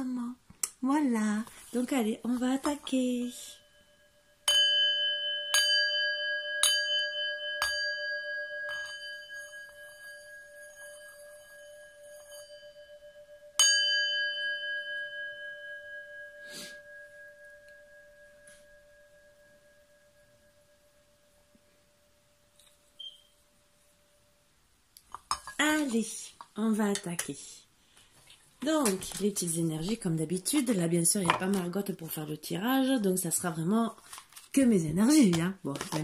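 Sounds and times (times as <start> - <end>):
singing bowl ringing: 3.3 - 22.1, 23.0 - 23.5.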